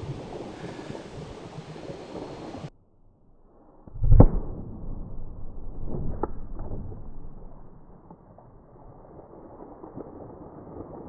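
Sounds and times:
deep dull boom of firecracker: 0:03.9 - 0:11.0.

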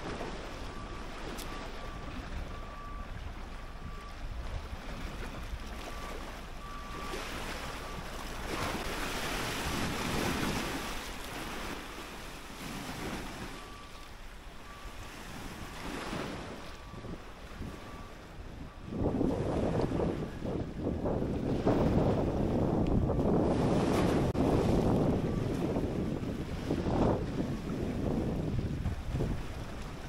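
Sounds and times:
waves washing against rocks: 0:00.0 - 0:17.9
wind rumble on microphone: 0:00.0 - 0:30.0.

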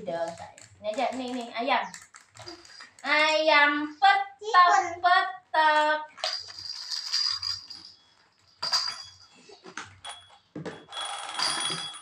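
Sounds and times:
plastic toys clicking together: 0:00.0 - 0:03.2.

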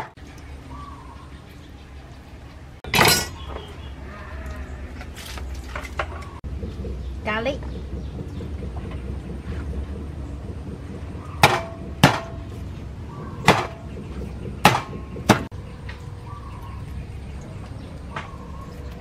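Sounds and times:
cleaver whacking on wooden board: 0:13.4 - 0:13.8, 0:14.6 - 0:15.5.

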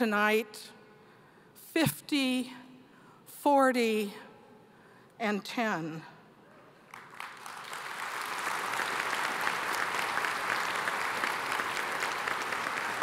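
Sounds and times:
audience applauding: 0:06.9 - 0:13.0.

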